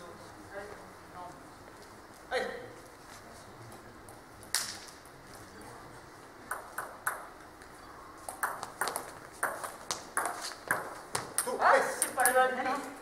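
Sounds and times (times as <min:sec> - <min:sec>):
table tennis ball clicking: 0:06.5 - 0:07.3, 0:08.3 - 0:12.4.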